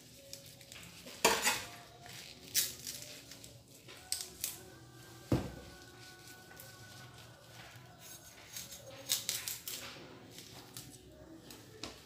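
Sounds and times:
leaves rustling and tearing: 0.0 - 4.8, 5.7 - 11.0.

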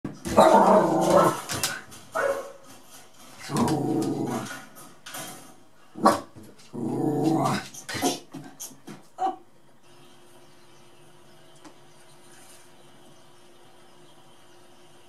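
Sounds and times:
dog barking: 2.2 - 2.6, 6.0 - 6.3
small dog growling: 3.4 - 4.6, 6.7 - 8.2.

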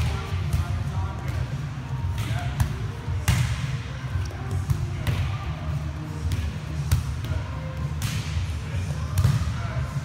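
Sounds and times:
volleyballs being struck: 0.0 - 5.4.

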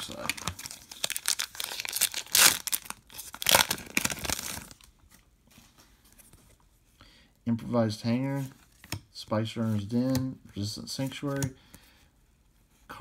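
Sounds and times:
foil wrapper ripping: 0.0 - 4.8
foil wrapper crinkling: 0.0 - 4.9.

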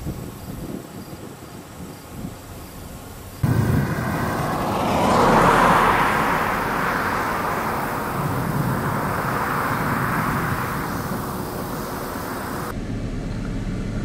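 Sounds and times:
car passing by: 3.4 - 12.7.

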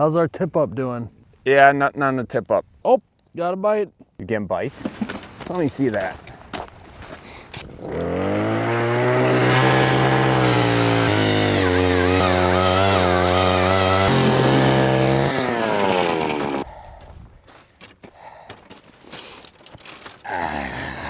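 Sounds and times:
auger bit drilling through ice: 7.6 - 16.7
gas ice auger engine revving: 7.6 - 16.7.

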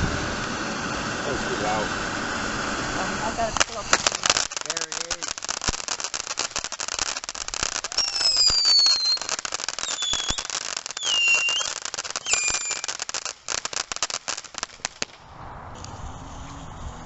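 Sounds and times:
firework fountain crackling: 0.0 - 17.0
firework whistles falling in pitch: 7.7 - 15.2.

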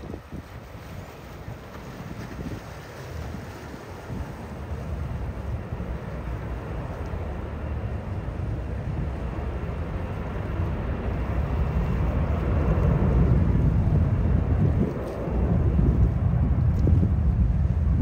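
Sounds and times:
jet engines rumbling at takeoff: 0.0 - 18.0.

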